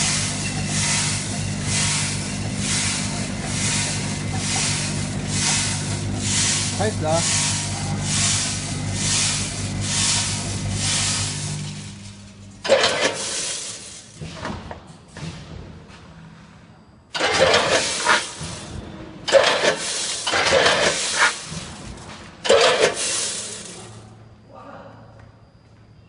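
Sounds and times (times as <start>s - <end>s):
rice grains rushing: 0.0s - 14.2s, 17.2s - 18.6s, 19.3s - 21.7s, 22.5s - 23.9s
low machine hum: 0.0s - 26.0s.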